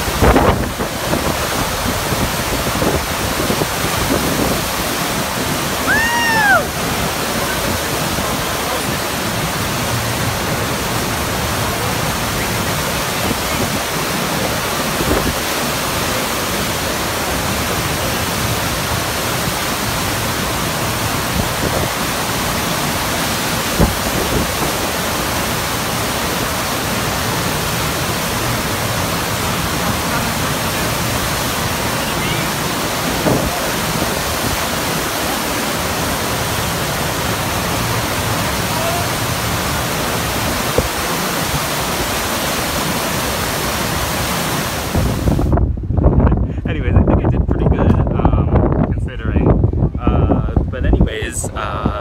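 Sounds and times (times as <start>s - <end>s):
rushing water: 0.0s - 47.4s, 49.5s - 52.0s.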